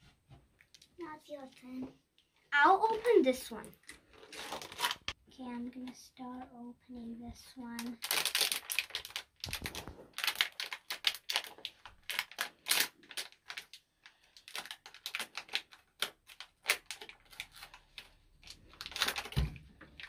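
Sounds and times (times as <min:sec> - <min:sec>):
plastic wrapper crinkling: 0:02.8 - 0:05.2, 0:07.6 - 0:20.0.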